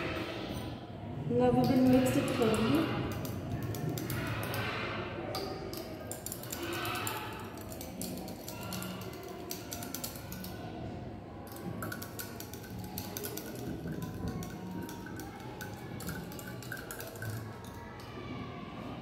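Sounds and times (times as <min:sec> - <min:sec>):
quiet background music: 0:00.0 - 0:19.0
glass clinking and tapping: 0:11.5 - 0:18.0.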